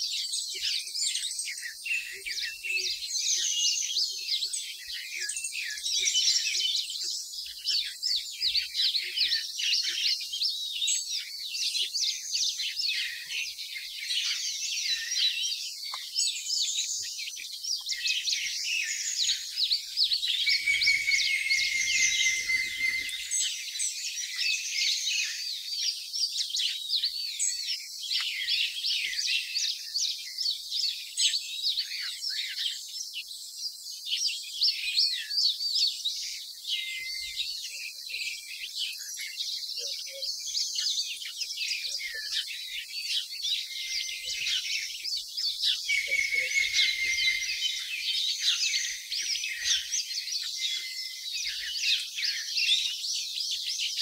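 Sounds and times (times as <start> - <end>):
small birds chirping: 0.0 - 54.0
high steady bird trill: 17.8 - 25.4, 41.8 - 52.9.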